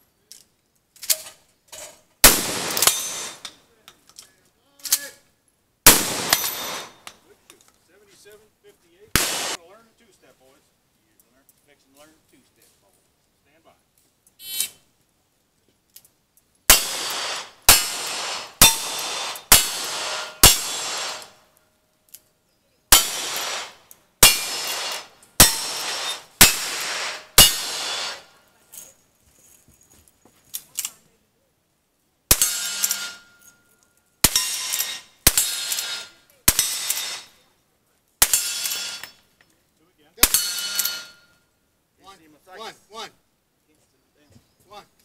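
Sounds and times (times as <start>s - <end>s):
revolver gunshots: 2.2s - 3.5s, 5.9s - 7.1s, 9.1s - 9.6s, 16.7s - 21.4s, 22.9s - 28.3s, 34.2s - 37.3s
rifle shots: 2.2s - 3.5s, 5.8s - 7.1s, 9.1s - 9.6s, 16.7s - 21.4s, 22.9s - 28.3s, 32.3s - 33.3s, 34.2s - 37.4s, 38.2s - 39.1s
steel targets ringing: 2.5s - 3.5s, 6.2s - 7.1s, 16.7s - 21.4s, 22.9s - 28.3s, 32.3s - 37.3s, 38.2s - 39.3s, 40.2s - 41.4s.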